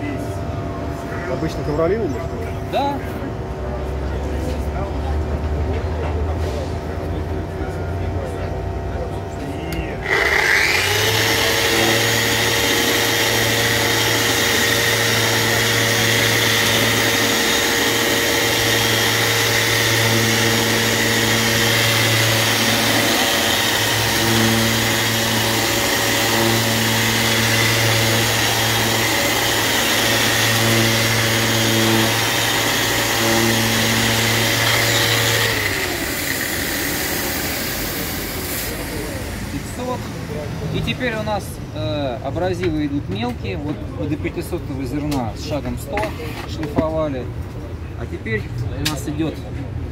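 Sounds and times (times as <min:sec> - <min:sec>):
eccentric sander running: 0:09.7 - 0:41.4
motor winding down whine: 0:10.0 - 0:40.9.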